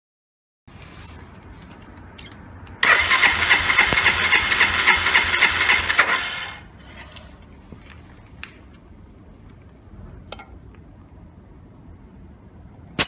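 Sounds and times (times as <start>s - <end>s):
engine cranking without firing: 2.8s - 6.6s.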